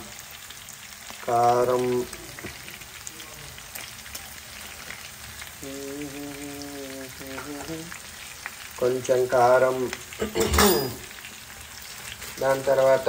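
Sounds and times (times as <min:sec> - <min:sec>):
chicken sizzling in oil: 0:00.0 - 0:13.0.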